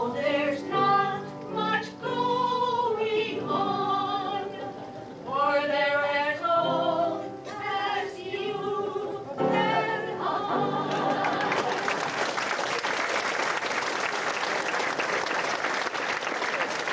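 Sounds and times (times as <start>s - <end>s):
women singing together: 0.0s - 12.0s
audience applause: 10.9s - 16.9s.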